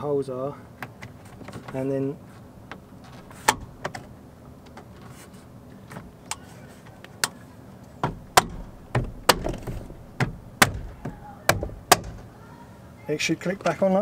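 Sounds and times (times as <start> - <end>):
dull knocks on plastic: 8.0 - 12.3.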